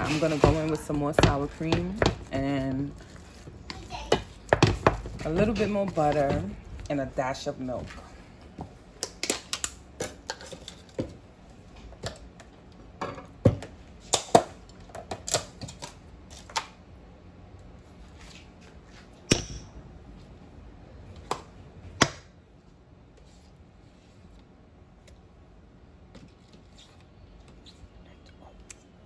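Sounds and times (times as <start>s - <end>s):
wooden spoon knocking pot: 0.0s - 3.1s, 3.8s - 6.6s.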